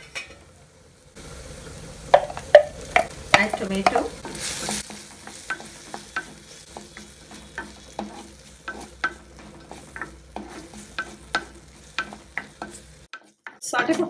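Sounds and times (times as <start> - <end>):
vegetables sizzling in oil: 0.0 - 14.0
spatula scraping a clay pot: 7.3 - 13.6.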